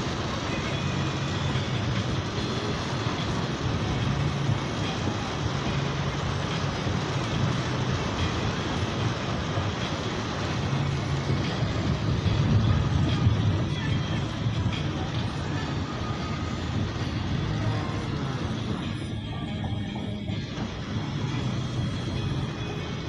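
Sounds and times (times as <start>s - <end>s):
heavy rain on a vehicle: 0.0s - 23.0s
van driving drone: 0.0s - 23.0s.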